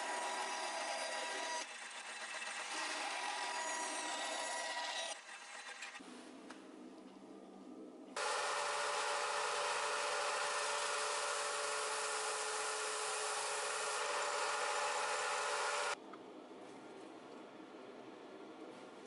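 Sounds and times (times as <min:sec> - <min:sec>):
motor hum: 0:08.2 - 0:16.0
sander grinding wood: 0:08.2 - 0:16.0.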